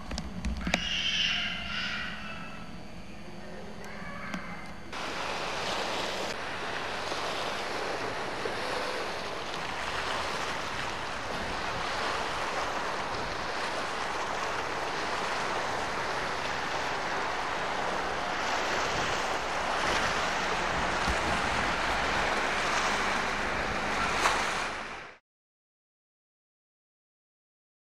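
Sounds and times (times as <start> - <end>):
wind: 0.0 - 25.2
surf: 4.3 - 25.2.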